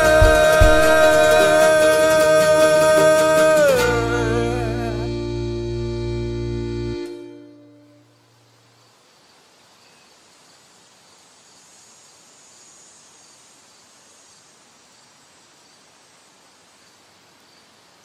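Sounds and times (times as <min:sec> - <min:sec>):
song: 0:00.0 - 0:07.9
soft steady hiss: 0:07.5 - 0:18.0.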